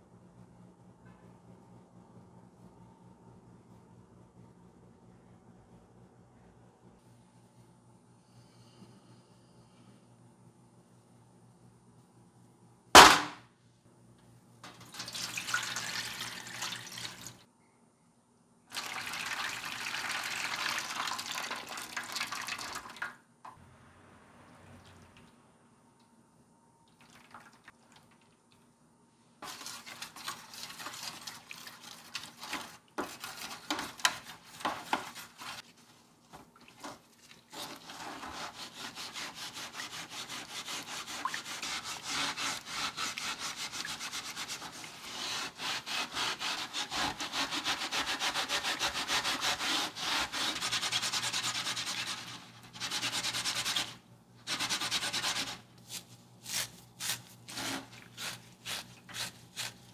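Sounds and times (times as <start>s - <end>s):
scouring pad scrubbing metal blade: 37.6s - 55.6s.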